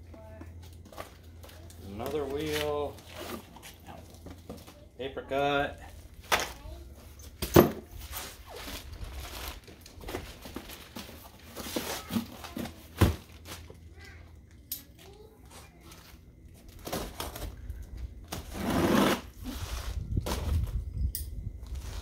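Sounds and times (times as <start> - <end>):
cardboard rustling: 7.9 - 13.8
plastic packaging crinkling: 8.4 - 12.6.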